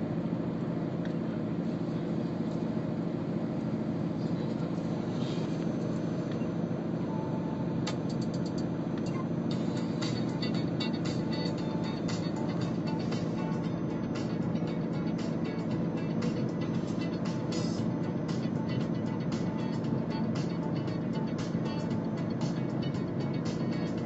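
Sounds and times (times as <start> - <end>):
car rumbling: 8.0 - 24.0.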